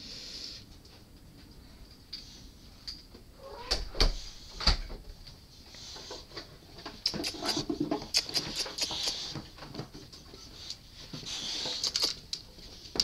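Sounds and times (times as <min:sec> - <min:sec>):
clicks and rustles: 0:04.6 - 0:13.0
dog sniffing and snuffling: 0:05.7 - 0:13.0.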